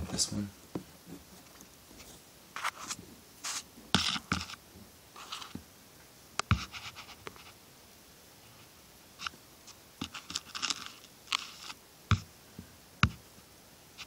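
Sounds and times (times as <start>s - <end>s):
scratching and rustling: 0.1s - 4.6s, 5.2s - 5.6s, 6.5s - 7.6s, 8.5s - 12.3s.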